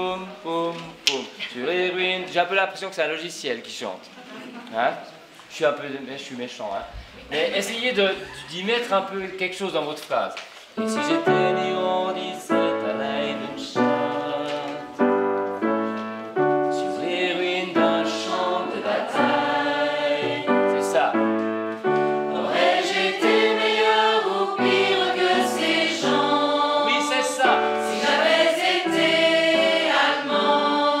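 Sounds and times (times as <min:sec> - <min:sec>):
piano chords: 0:10.8 - 0:31.0
choir singing: 0:11.1 - 0:15.7, 0:16.3 - 0:31.0.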